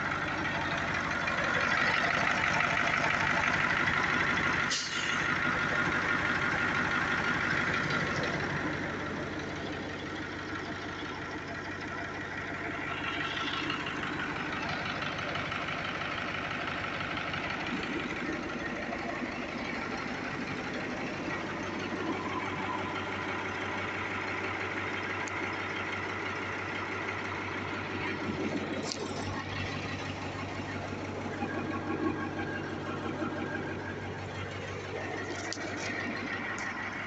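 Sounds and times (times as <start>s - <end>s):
truck engine idling: 0.0s - 37.0s.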